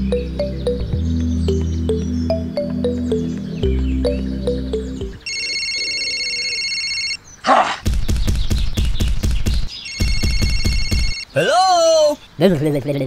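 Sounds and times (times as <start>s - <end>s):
electronic trilling ringtone: 5.2s - 7.2s, 9.8s - 11.2s
phone vibration buzz: 5.2s - 7.2s.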